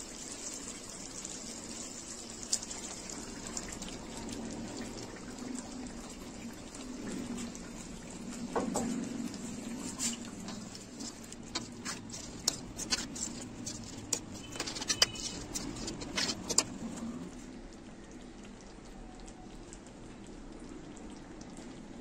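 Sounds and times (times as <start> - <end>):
sauce sizzling and popping: 0.0 - 17.5
sauce simmering: 0.0 - 22.0.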